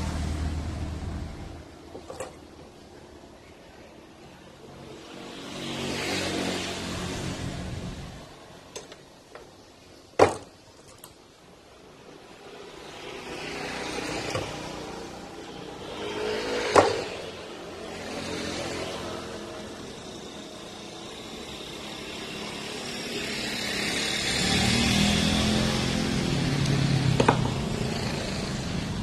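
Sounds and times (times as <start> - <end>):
vehicles passing by: 0.0 - 29.0.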